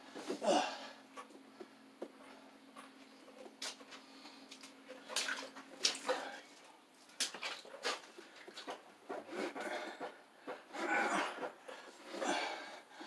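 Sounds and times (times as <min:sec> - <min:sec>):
man grunting and breathing: 0:00.2 - 0:01.0, 0:10.7 - 0:13.0.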